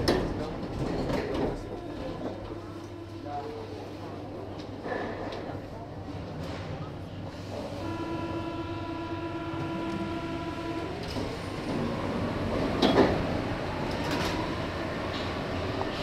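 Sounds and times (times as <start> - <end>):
train doors shutting: 6.4 - 16.0
train motor whine: 7.5 - 15.4
steady buzzer: 7.8 - 11.6.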